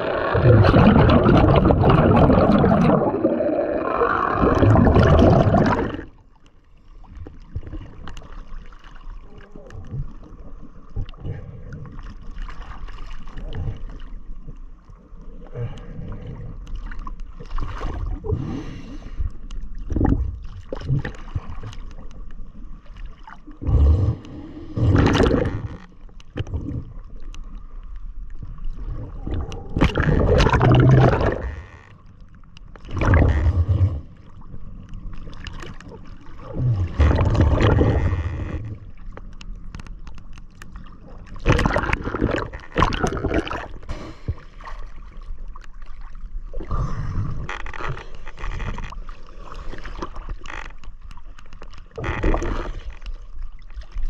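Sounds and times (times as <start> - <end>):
sea water sloshing and gurgling: 0.0 - 54.0.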